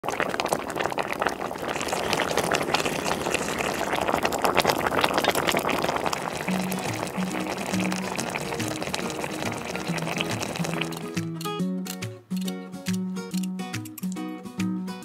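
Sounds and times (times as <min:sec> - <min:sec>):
sauce simmering with bubbles popping: 0:00.0 - 0:11.4
music: 0:06.5 - 0:15.0.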